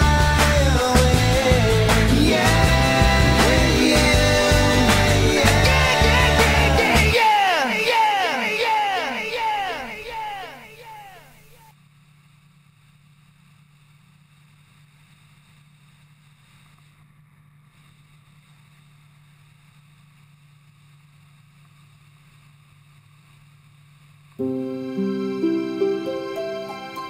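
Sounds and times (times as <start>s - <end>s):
music: 0.0s - 7.2s, 24.4s - 27.0s.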